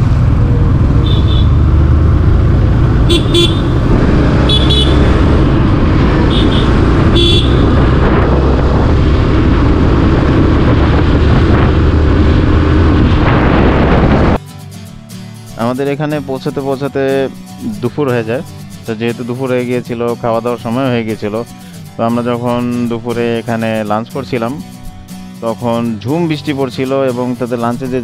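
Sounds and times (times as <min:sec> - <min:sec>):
motorcycle engine running: 0:00.0 - 0:14.4.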